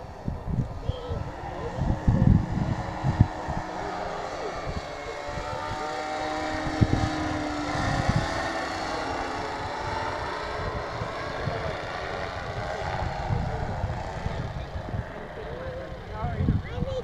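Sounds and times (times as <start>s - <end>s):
small propeller motor droning: 0.0s - 17.0s
wind rumbling on microphone: 0.0s - 17.0s.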